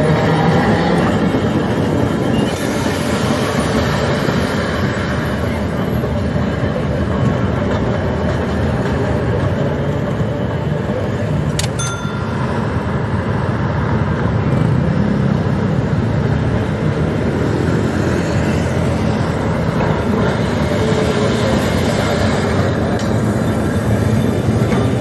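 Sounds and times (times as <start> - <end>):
tram rumbling along rails: 0.0 - 25.0
cars passing: 11.3 - 25.0.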